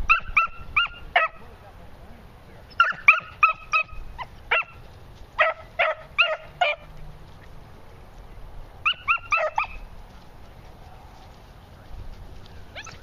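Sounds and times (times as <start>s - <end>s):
puppies yipping: 0.0s - 1.4s, 2.7s - 6.9s, 8.8s - 9.9s, 12.4s - 13.0s.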